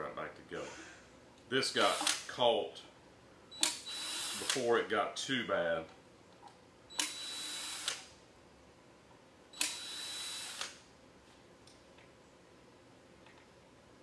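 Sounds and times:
cordless drill whining: 0:03.6 - 0:04.6, 0:07.0 - 0:08.0, 0:09.6 - 0:10.8.

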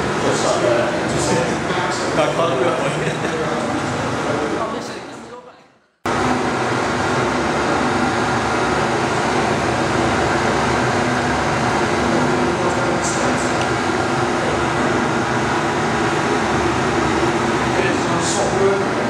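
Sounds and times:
jet cockpit roar with low hum: 0:06.1 - 0:19.0.

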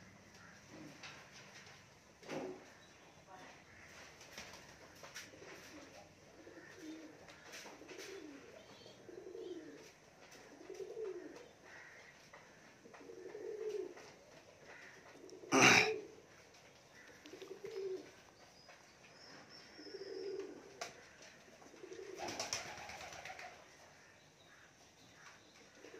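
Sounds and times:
pigeons cooing: 0:03.8 - 0:18.4, 0:19.2 - 0:24.6, 0:25.2 - 0:25.9.

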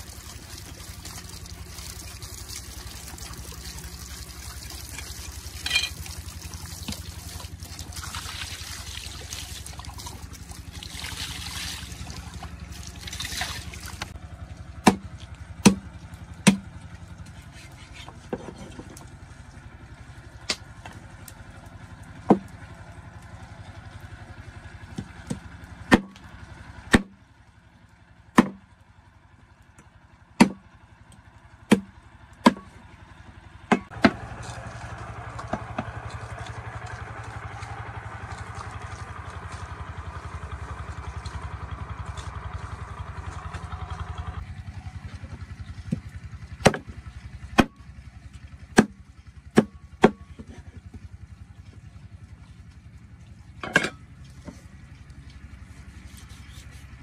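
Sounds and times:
sharp chopping blows: 0:28.4 - 0:28.6.

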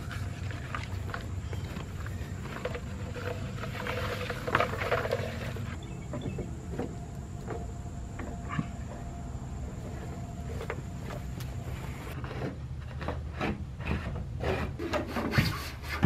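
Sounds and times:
footsteps in soft soil: 0:00.0 - 0:04.9.

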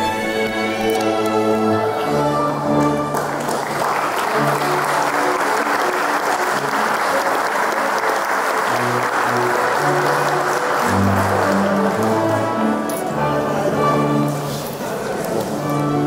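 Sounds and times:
crowd applauding: 0:02.5 - 0:13.0.

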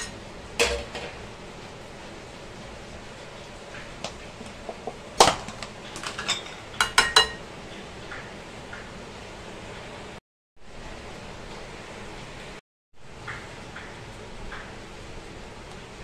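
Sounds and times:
spoon clinking against bowls: 0:06.0 - 0:07.4.

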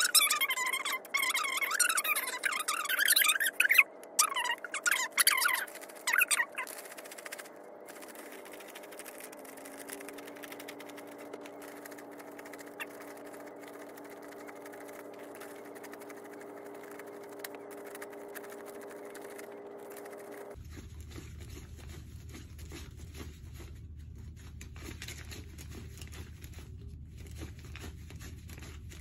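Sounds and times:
banknotes flicking and rustling: 0:00.0 - 0:29.0
steady low hum: 0:00.0 - 0:29.0.

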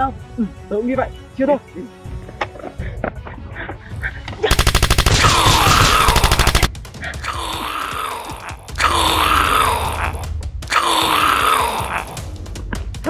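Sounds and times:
automatic gunfire: 0:04.5 - 0:06.7
zombie moan: 0:05.2 - 0:12.3.

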